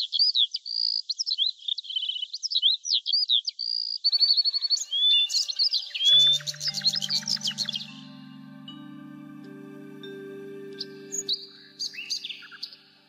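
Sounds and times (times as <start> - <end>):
songbirds chirping and whistling: 0.0 - 13.0
soft background music: 4.1 - 13.0.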